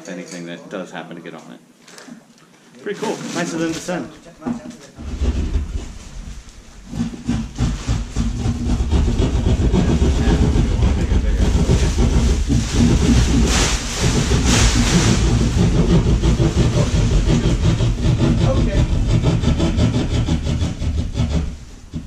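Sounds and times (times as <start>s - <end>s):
plastic tarp rustling and crackling: 2.8s - 4.3s, 4.9s - 17.5s
steady low rumble: 5.0s - 22.0s.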